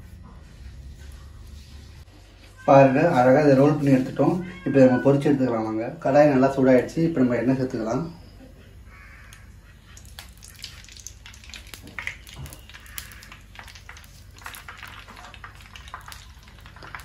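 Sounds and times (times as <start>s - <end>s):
light oil crackles: 9.2s - 17.0s
oil pouring into pan: 10.0s - 17.0s.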